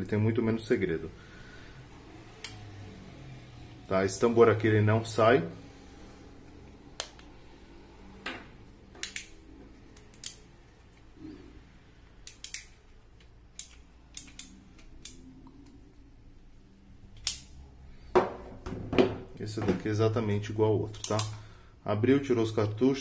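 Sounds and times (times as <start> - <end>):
revolver parts clicking: 8.8 - 11.2, 12.0 - 16.1, 17.0 - 17.7, 20.9 - 21.5.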